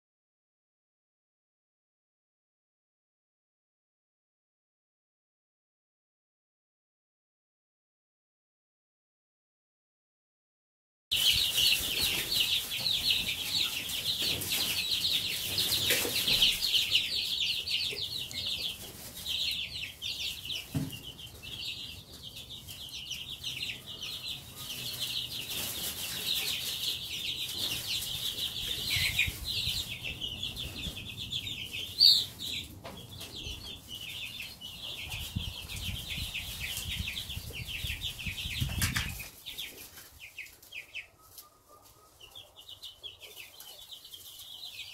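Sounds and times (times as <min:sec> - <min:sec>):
chicks peeping: 0:11.1 - 0:44.9.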